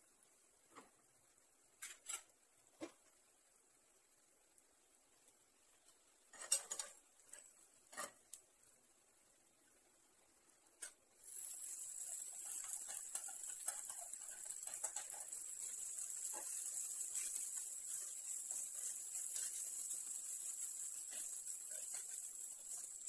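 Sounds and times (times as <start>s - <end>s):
rice sizzling in oil: 0.0s - 23.0s
metal spoon scraping a pan: 1.8s - 2.3s, 6.3s - 8.3s, 10.8s - 23.0s.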